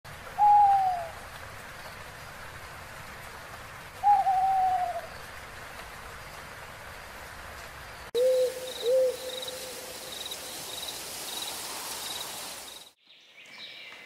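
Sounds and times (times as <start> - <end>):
faint steady hiss: 0.1 - 13.0
bird hooting: 4.0 - 5.1, 8.2 - 9.9.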